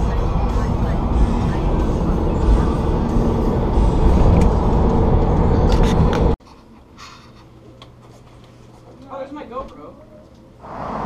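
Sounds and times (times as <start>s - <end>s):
car cabin road and engine rumble: 0.0s - 6.4s.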